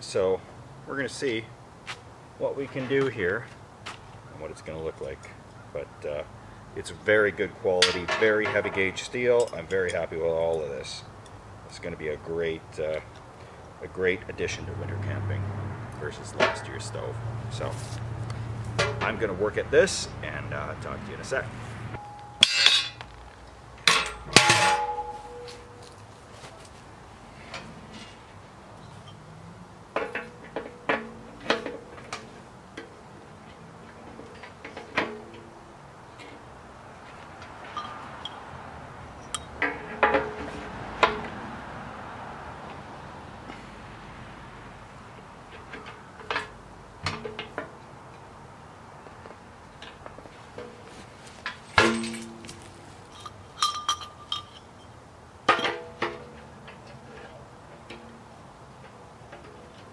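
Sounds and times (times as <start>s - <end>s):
metal clanks ringing: 7.8s - 11.4s, 16.1s - 17.7s, 18.8s - 20.1s, 22.0s - 23.2s, 23.8s - 26.0s, 30.0s - 32.9s, 37.6s - 38.5s, 39.2s - 41.3s, 50.6s - 58.2s
metal clinks: 9.3s - 11.4s, 22.0s - 23.2s, 23.8s - 26.0s, 37.6s - 38.5s, 51.5s - 56.0s
ringing hum of steel: 22.0s - 23.2s, 23.8s - 26.0s, 37.6s - 38.6s, 51.7s - 56.0s.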